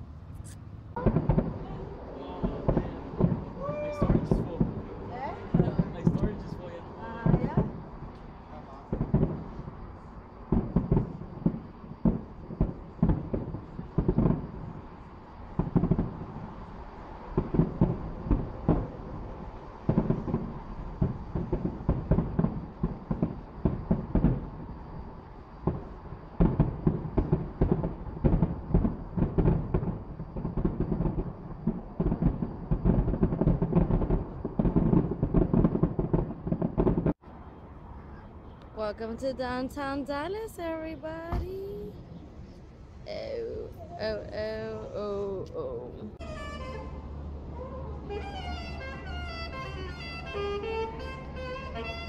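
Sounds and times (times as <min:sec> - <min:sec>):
fireworks bursting booms: 0:00.9 - 0:37.2, 0:39.1 - 0:42.0.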